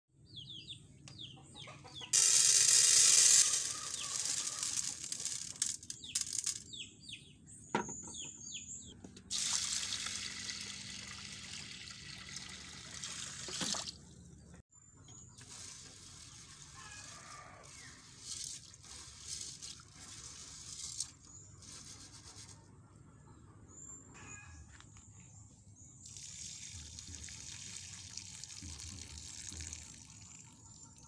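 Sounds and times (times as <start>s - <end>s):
small birds chirping: 0.2s - 2.2s, 3.4s - 9.1s.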